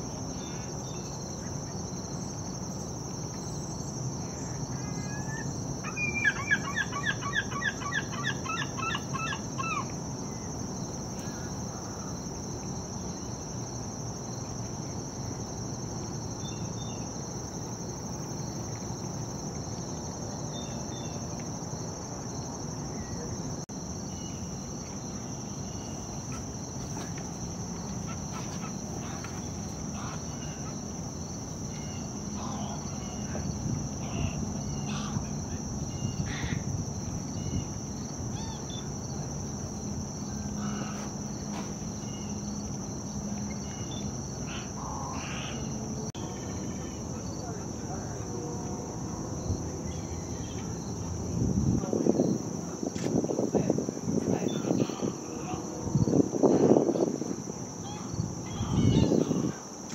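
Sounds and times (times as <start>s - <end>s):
insects droning: 0.0s - 59.9s.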